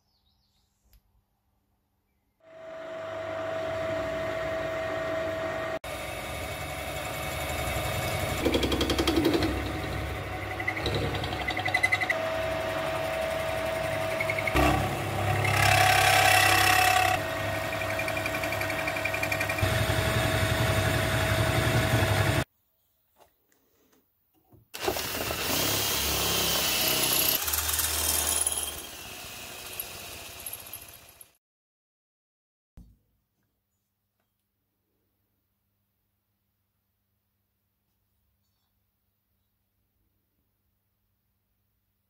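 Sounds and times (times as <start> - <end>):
drill motor whine: 2.4 - 8.9, 9.6 - 22.4, 24.8 - 31.3
drill cutting into metal: 10.8 - 22.4, 24.8 - 31.3.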